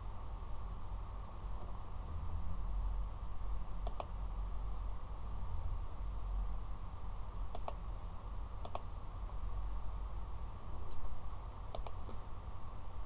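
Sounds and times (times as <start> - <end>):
low background hum: 0.0 - 13.0
computer mouse clicks: 3.8 - 4.2, 7.5 - 7.8, 8.6 - 8.9, 11.7 - 12.2.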